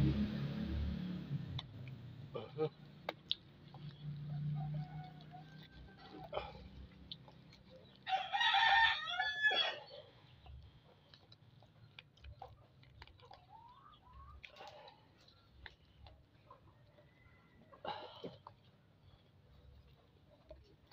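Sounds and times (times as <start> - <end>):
rooster crowing: 4.3 - 6.6, 8.1 - 9.9.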